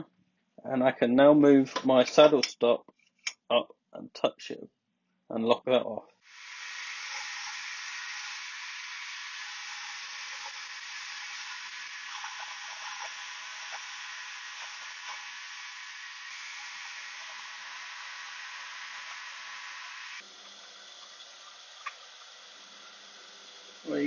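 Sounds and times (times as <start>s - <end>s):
lathe cutting hiss: 6.2s - 24.0s.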